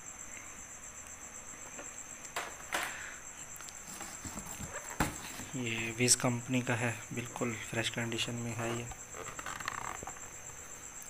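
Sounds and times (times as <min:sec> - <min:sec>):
cricket chirping: 0:00.0 - 0:11.0
plastic device being handled: 0:03.8 - 0:05.6, 0:08.5 - 0:10.6.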